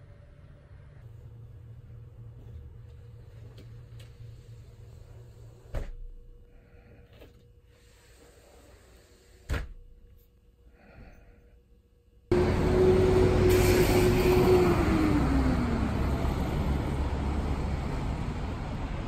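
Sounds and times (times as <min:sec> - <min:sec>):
city traffic: 0:12.3 - 0:19.0
vehicle passing by: 0:12.3 - 0:19.0.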